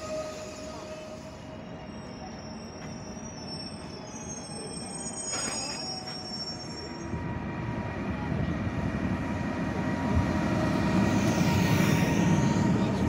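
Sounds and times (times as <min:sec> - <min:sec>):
shrill wheel squeal: 0:00.0 - 0:07.3, 0:11.1 - 0:13.0
train rumbling on rails: 0:00.0 - 0:13.0.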